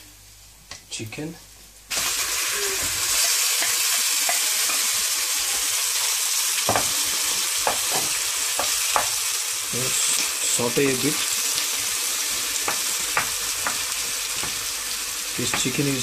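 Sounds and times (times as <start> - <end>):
chicken sizzling in hot oil: 1.9 - 16.0
spatula knocking against pan: 12.7 - 14.6.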